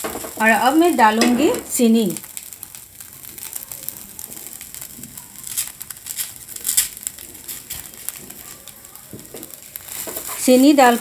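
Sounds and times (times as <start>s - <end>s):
sugar pattering in a hot pan: 0.0s - 11.0s.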